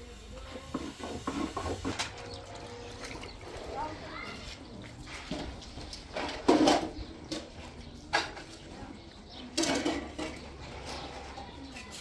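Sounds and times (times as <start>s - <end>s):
dishes rattling: 4.9s - 12.0s
short knocks and clatters: 5.0s - 8.7s
basin of plates set down clattering: 5.1s - 8.7s, 9.4s - 10.6s.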